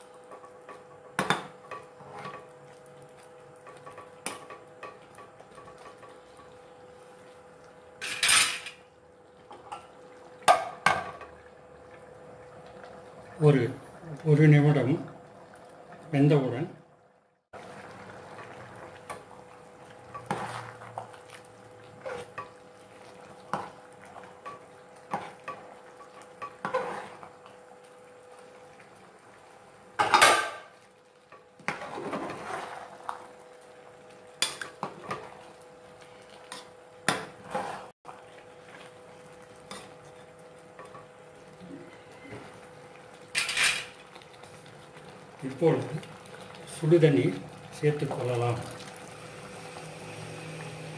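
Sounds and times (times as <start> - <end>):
spatula scraping metal pot: 26.6 - 27.2.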